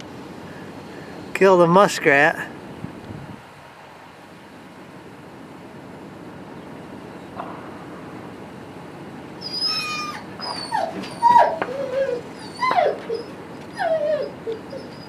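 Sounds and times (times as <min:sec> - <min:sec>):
dog whining: 0:09.4 - 0:15.0.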